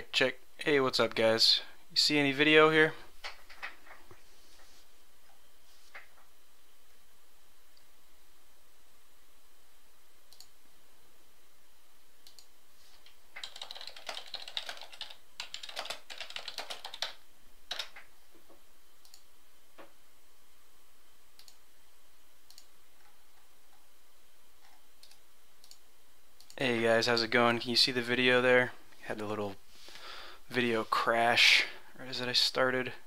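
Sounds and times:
computer keyboard typing: 13.4 - 18.1.

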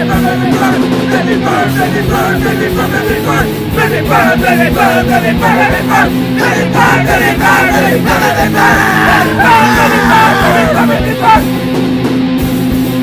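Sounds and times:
punk rock song: 0.0 - 13.0.

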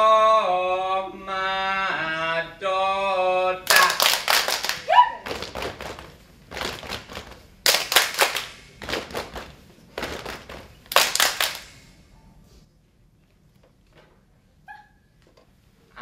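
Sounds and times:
dancers clapping and slapping: 3.7 - 11.8.

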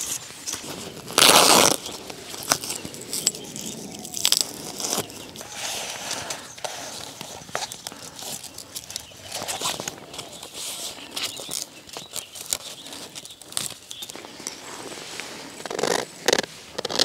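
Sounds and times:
loud ripping sound: 0.0 - 6.4.

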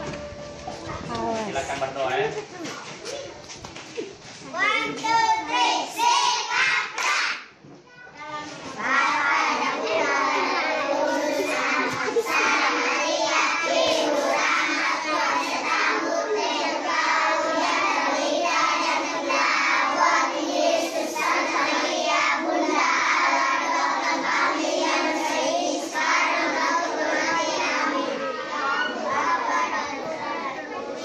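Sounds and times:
children singing in unison: 8.8 - 31.0.

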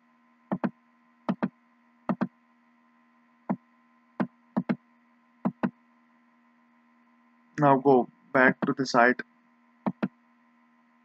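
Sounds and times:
faint electrical hum: 0.0 - 11.0
computer mouse clicking: 0.5 - 0.7, 1.3 - 1.5, 2.1 - 2.3, 4.6 - 4.8, 5.4 - 5.7, 9.9 - 10.1.

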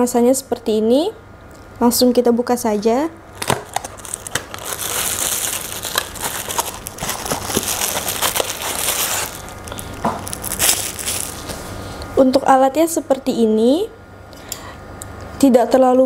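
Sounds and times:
plastic crinkling: 3.3 - 11.8
cardboard rustling: 3.4 - 11.8.

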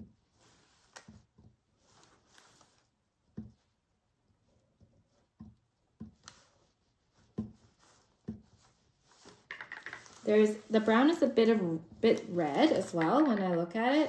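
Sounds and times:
paintbrush tapping on canvas: 3.3 - 3.7.

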